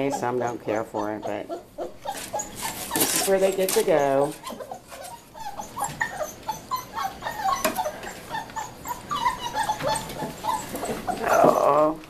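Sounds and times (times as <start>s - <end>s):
puppies whining and yipping: 0.0s - 12.0s.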